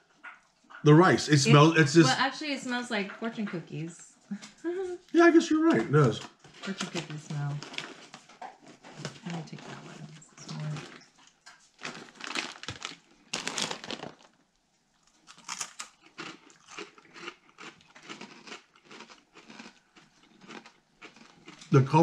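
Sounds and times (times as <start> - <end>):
crunching crackers: 5.2 - 22.0
plastic bag crinkling: 6.4 - 17.3.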